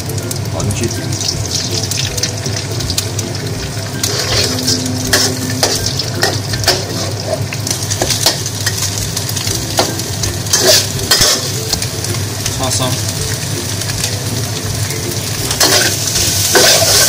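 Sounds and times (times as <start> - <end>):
egg white sizzling in wok: 0.0 - 17.0
metal spatula scraping wok: 3.9 - 8.9, 9.8 - 11.6, 15.5 - 17.0.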